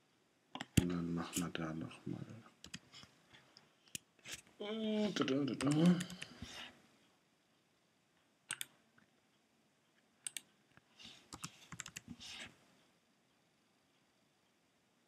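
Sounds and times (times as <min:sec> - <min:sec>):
computer mouse clicks: 0:02.6 - 0:02.8, 0:05.6 - 0:06.4, 0:08.5 - 0:08.7, 0:10.2 - 0:10.5, 0:11.3 - 0:12.3
keyboard keystrokes: 0:05.6 - 0:06.3, 0:11.3 - 0:12.1.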